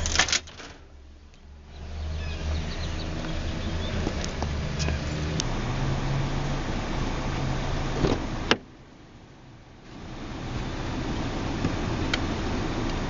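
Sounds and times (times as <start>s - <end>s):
outdoor rumble: 0.0s - 13.0s
faint bird chirps: 1.4s - 4.0s.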